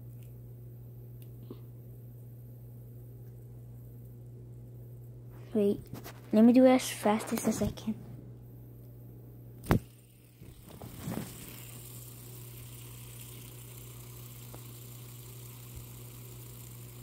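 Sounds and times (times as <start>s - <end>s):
fidget spinner bearing whirring: 9.6s - 17.0s.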